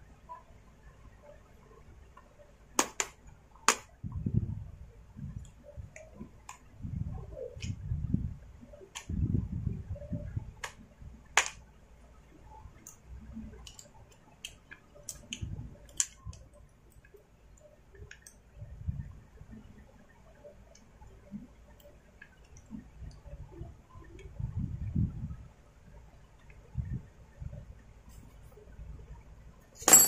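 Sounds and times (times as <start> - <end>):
small parts clicking and tapping: 10.6 - 11.7, 12.7 - 18.6.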